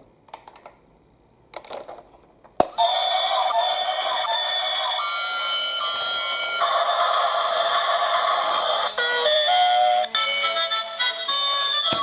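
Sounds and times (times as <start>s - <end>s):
electronic toy held tones: 2.7s - 12.0s.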